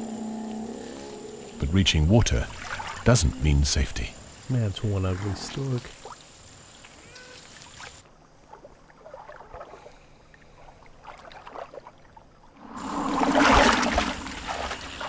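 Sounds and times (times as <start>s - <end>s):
faint underwater stirring: 0.0s - 6.2s
splash and rustle of water plants: 5.0s - 15.0s.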